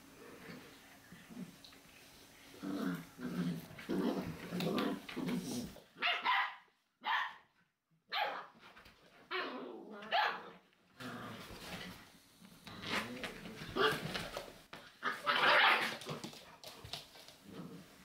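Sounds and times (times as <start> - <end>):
puppies growling: 2.5 - 5.9, 17.1 - 18.0.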